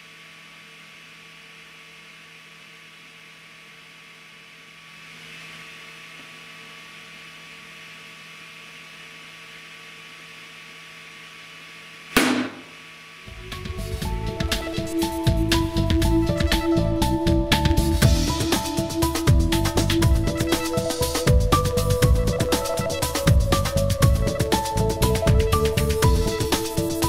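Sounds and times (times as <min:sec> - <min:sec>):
machine humming: 0:01.4 - 0:27.0
loud sharp bang: 0:12.2 - 0:12.7.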